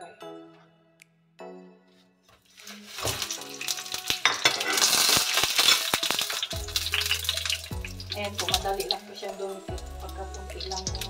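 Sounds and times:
bananas sizzling in pan: 2.5 - 11.0.

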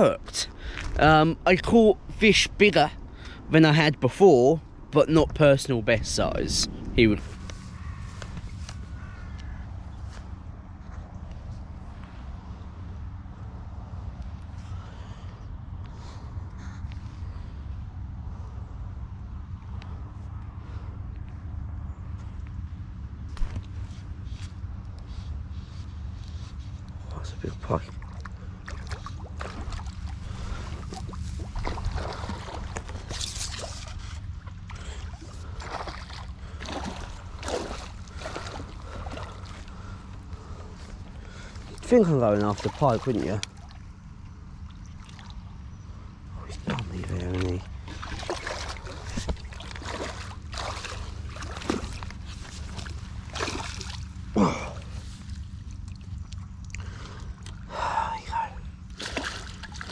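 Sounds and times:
low microphone rumble: 4.6 - 59.9
water sloshing and splashing: 25.5 - 57.7, 58.3 - 59.9.

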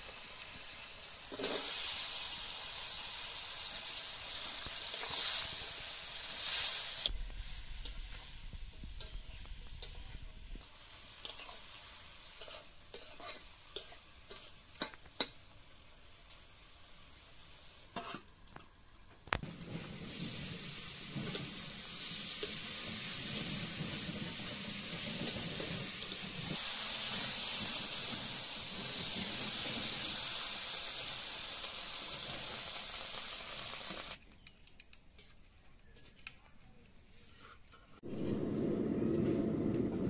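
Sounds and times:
water poured into hot wok: 0.0 - 9.2, 19.4 - 34.2
vegetables sizzling in oil: 0.0 - 34.2.

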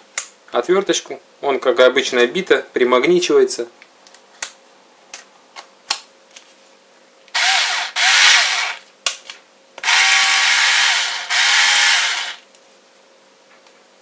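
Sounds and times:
screwdriver motor whining: 7.4 - 8.8, 9.8 - 12.4.

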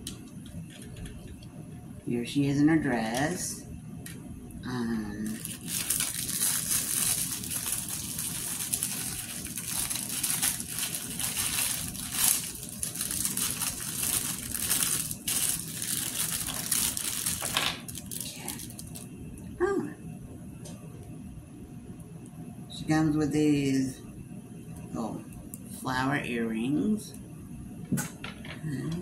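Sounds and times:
plastic packaging crinkling: 5.2 - 19.1.

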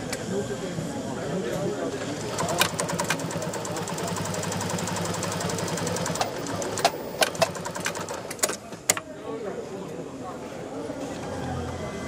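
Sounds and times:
sewing machine running: 2.0 - 8.6.

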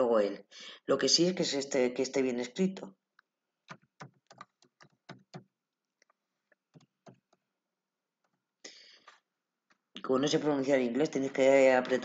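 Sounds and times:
faint keyboard typing: 3.7 - 5.5.

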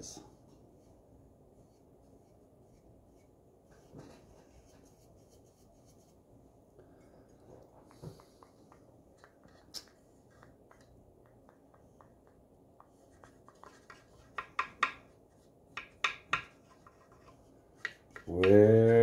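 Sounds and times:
paintbrush brushing on wood: 1.6 - 6.4, 12.8 - 15.6, 16.4 - 18.3
light taps: 7.6 - 15.1.

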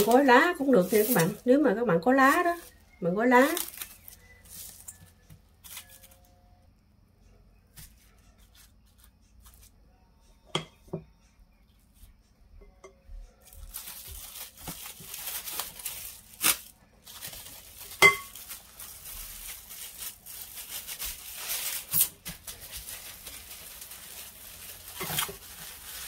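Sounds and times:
plastic wrap crinkling: 0.0 - 6.3, 13.4 - 26.0.

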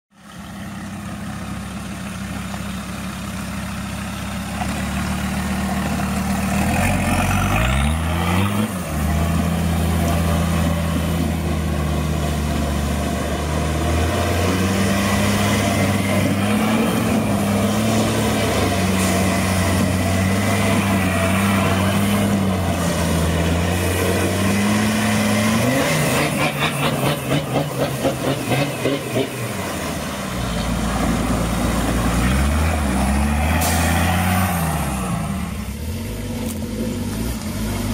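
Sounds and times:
off-road vehicle engine revving: 3.2 - 37.9.

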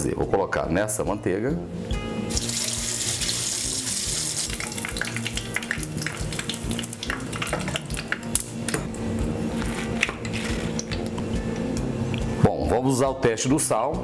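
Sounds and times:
meatball sizzling in butter: 2.3 - 8.7.

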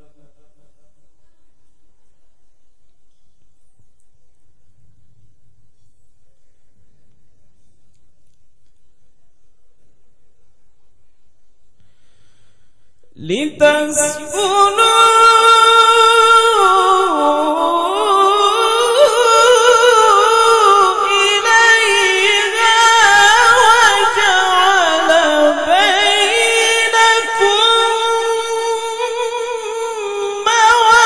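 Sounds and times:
man chanting melodically: 13.1 - 31.0.

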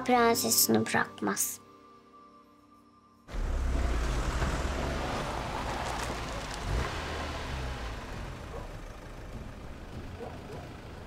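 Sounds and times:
car engine rumbling: 3.3 - 11.0
road noise: 3.3 - 11.0.

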